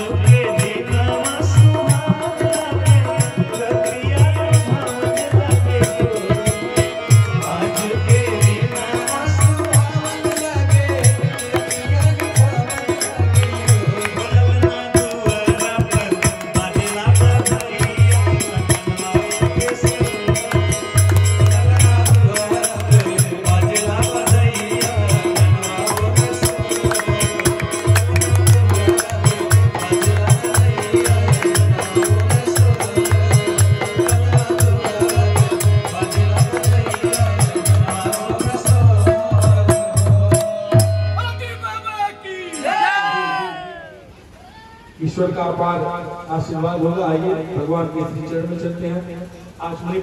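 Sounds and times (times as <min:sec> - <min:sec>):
hand drum beat: 0:00.0 - 0:41.0
jingling small percussion: 0:00.0 - 0:43.3
harmonium chords: 0:00.0 - 0:50.0.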